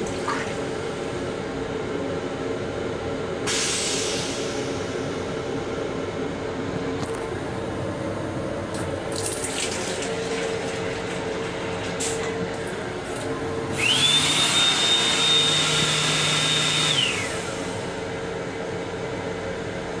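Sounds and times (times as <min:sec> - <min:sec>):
railcar hum: 0:00.0 - 0:20.0
sink unit rushing and whining: 0:08.8 - 0:17.9.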